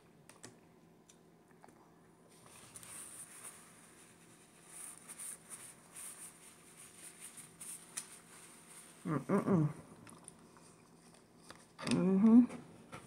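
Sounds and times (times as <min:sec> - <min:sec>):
soft chewing: 0:00.3 - 0:05.4, 0:09.7 - 0:11.8
paper napkin rustling: 0:02.3 - 0:09.2
person humming: 0:09.0 - 0:09.8.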